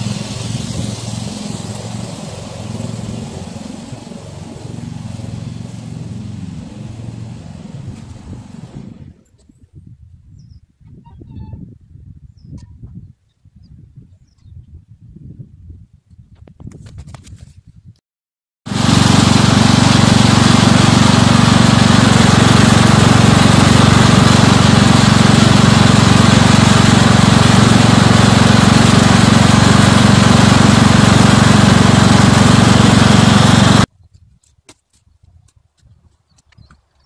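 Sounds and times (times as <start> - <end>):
lawn tractor engine running: 0.0 - 9.3, 18.7 - 33.9.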